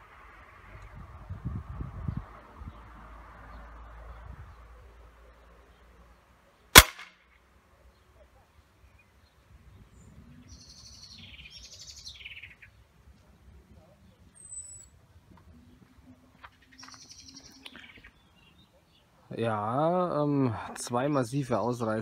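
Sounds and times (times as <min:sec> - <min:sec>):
songbird singing: 0:01.8 - 0:22.0
air rifle shot: 0:06.8 - 0:07.2.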